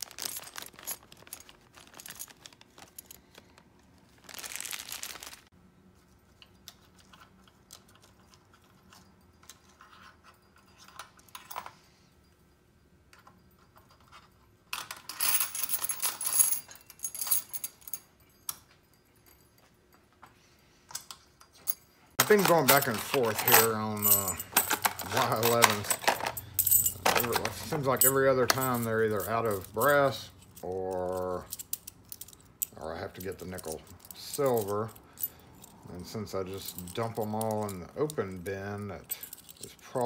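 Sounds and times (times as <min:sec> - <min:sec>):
metal keys jingling: 0:00.0 - 0:03.6, 0:13.2 - 0:19.9, 0:21.0 - 0:40.0
plastic bag crinkling: 0:00.0 - 0:05.5.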